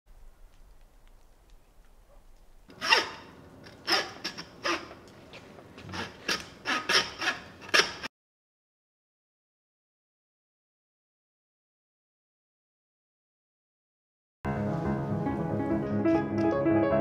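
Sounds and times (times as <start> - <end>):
hand saw rasping through meat: 2.7 - 5.0, 5.8 - 8.1.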